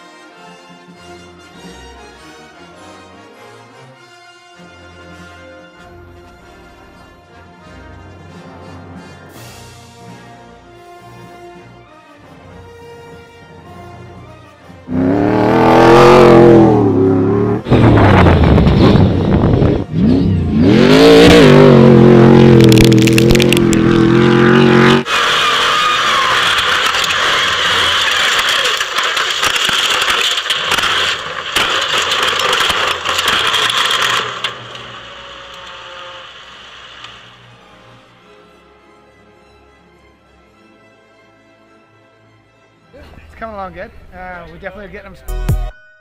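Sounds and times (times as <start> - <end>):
race truck engine revving: 14.8 - 37.5
rushing hiss with crackles: 27.6 - 37.6.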